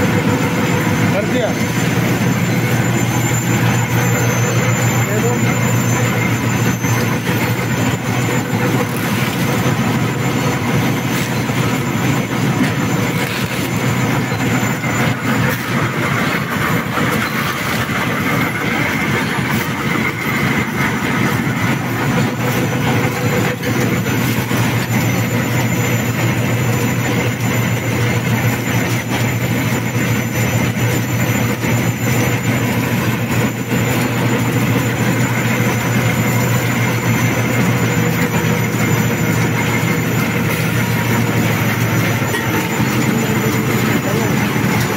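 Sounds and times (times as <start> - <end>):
constant low hum: 0.0 - 44.9
printing press rumble and clatter: 0.0 - 44.9.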